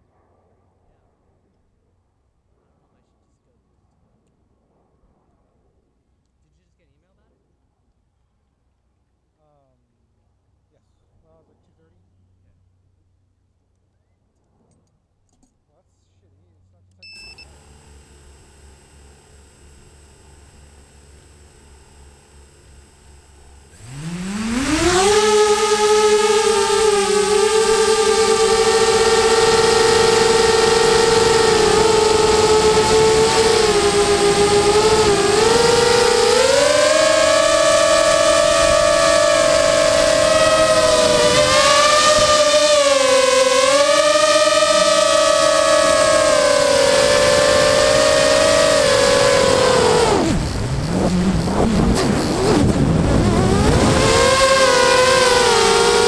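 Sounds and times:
drone motors whining: 0:17.0 - 0:56.0.

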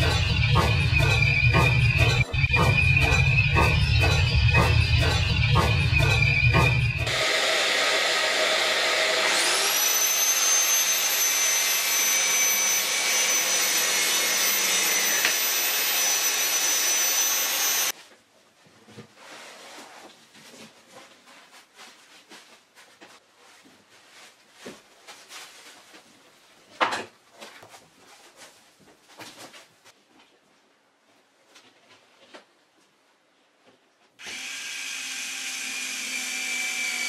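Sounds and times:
high motor whine: 0:00.0 - 0:17.9
power tool with vacuum suction: 0:07.0 - 0:17.9, 0:34.2 - 0:37.0.

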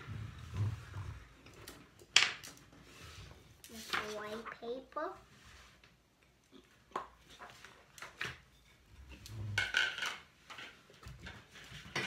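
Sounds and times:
paper rustling: 0:03.0 - 0:04.6.

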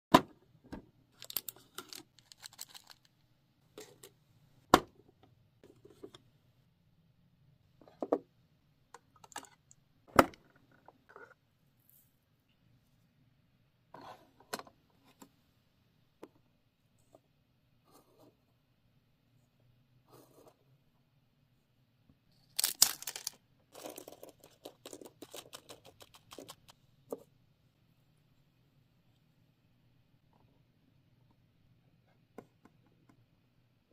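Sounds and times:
plastic chips crinkling onto plate: 0:01.2 - 0:03.1, 0:22.5 - 0:26.1.

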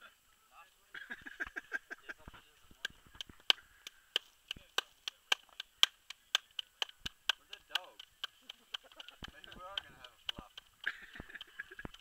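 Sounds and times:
hands slapping dough: 0:02.8 - 0:12.0.

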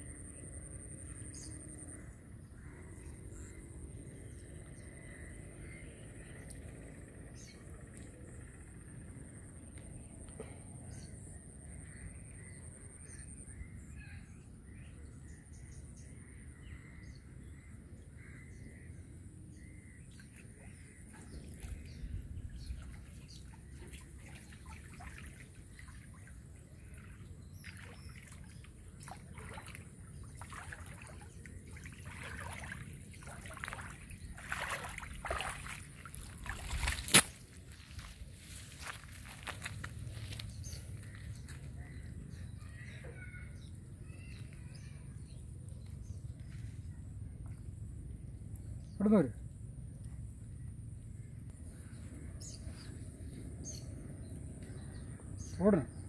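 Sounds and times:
water splashing and sloshing: 0:20.0 - 0:41.8
faint bird chirps: 0:37.8 - 0:47.6.

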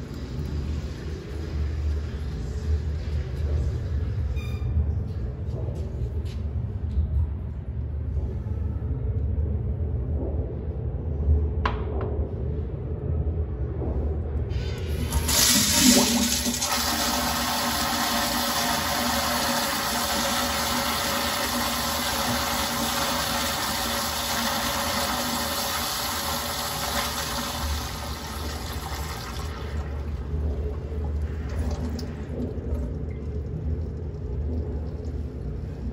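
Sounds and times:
toilet flushing: 0:14.5 - 0:35.3.

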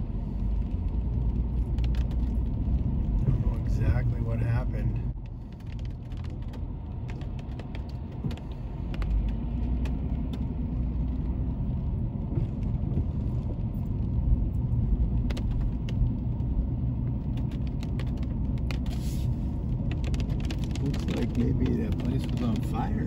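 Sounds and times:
engine and tyre rumble: 0:00.0 - 0:23.0
faint engine hum: 0:00.0 - 0:23.0.

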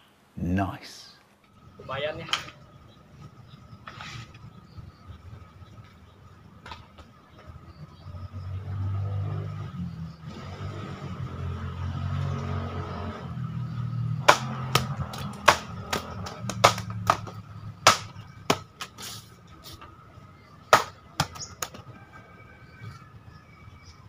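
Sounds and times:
passing vehicle engine hum: 0:01.6 - 0:20.7
sword chopping banana trunk: 0:14.2 - 0:19.1, 0:20.7 - 0:21.8.

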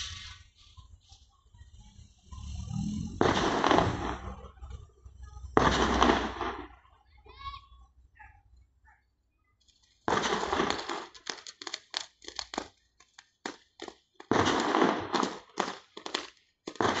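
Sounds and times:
fireworks crackling bangs: 0:00.0 - 0:00.8, 0:03.0 - 0:07.2, 0:09.9 - 0:17.0.

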